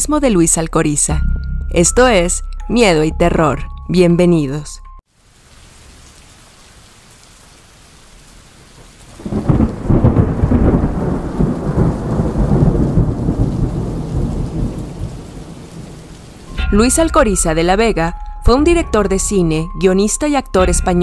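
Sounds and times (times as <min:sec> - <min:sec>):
faint rain hiss: 0:05.1 - 0:16.6
low rumble of thunder: 0:09.1 - 0:16.4.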